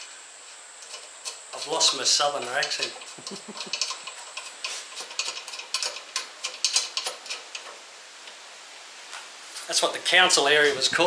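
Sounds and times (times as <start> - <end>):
metal mudguard clicks and scrapes: 0.8 - 7.8.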